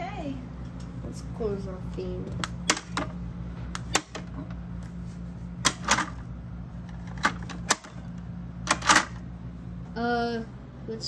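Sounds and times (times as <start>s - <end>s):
low electrical hum: 0.0s - 11.0s
sharp clicks and knocks: 2.3s - 4.6s, 6.9s - 9.2s.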